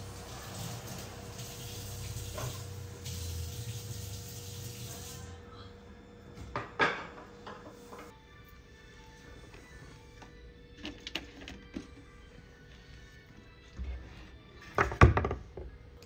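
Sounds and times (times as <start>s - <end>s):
tap water running into sink: 0.0s - 5.2s
dishes knocking: 6.5s - 8.0s.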